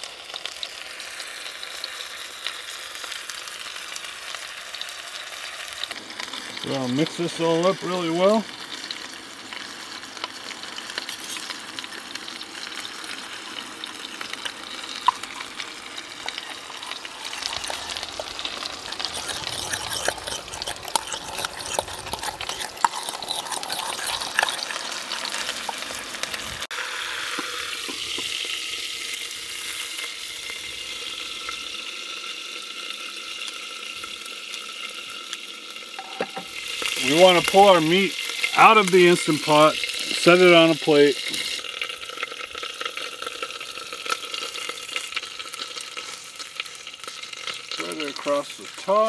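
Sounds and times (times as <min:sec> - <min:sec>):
meat sizzling: 0:00.0 - 0:49.0
spoon scraping enamel bowl: 0:11.1 - 0:11.5, 0:16.2 - 0:25.8, 0:36.0 - 0:36.6.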